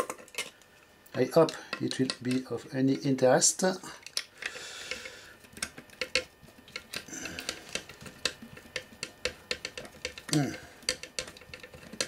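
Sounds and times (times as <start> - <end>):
hand tools clicking on metal: 4.0 - 12.0.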